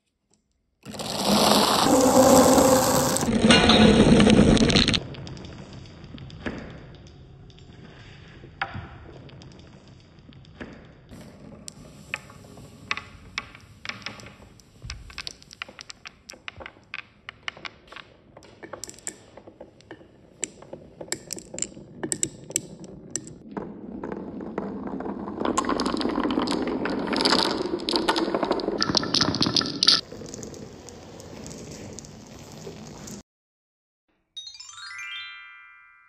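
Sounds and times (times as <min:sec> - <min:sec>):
marbles rolling through tubes: 0:00.9 - 0:33.2
marbles clicking together: 0:12.9 - 0:23.4, 0:25.5 - 0:30.6.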